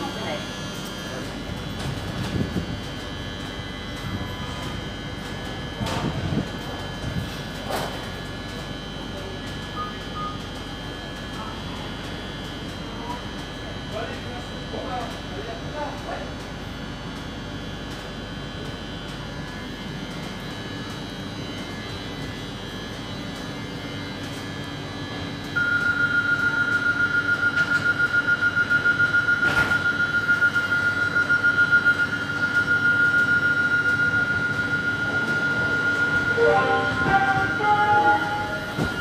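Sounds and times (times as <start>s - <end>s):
electric ringing warning signal: 25.5s - 39.0s
train humming: 35.4s - 39.0s.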